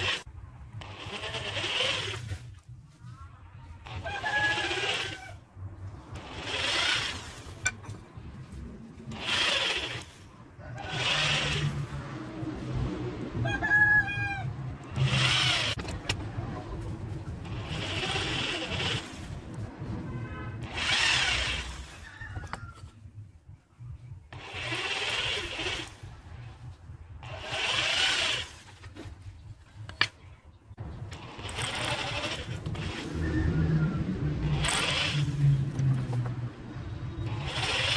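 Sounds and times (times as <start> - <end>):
electric drill boring into wood: 0.0 - 2.4, 3.8 - 5.4, 6.2 - 7.8, 9.1 - 10.2, 10.8 - 12.0, 14.9 - 15.8, 17.4 - 19.4, 20.6 - 22.0, 24.3 - 26.1, 27.2 - 28.8, 31.1 - 33.6, 34.4 - 35.7, 37.2 - 37.9.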